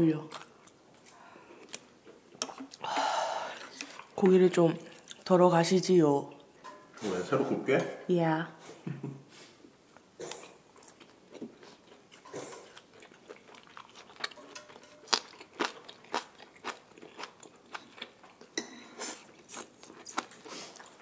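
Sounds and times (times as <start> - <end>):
person chewing: 0.3 - 5.3, 10.2 - 21.0.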